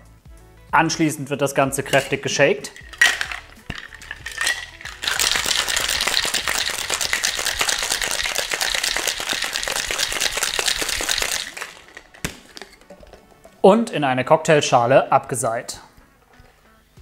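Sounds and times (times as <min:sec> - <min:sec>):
ice rattling in cocktail shaker: 0:01.9 - 0:13.6.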